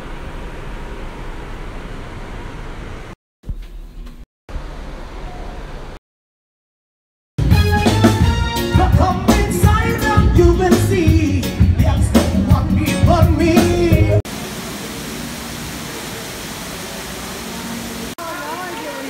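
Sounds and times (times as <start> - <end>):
live band playing: 7.4 - 14.2
person singing: 8.6 - 14.2
steady hiss: 14.3 - 19.0.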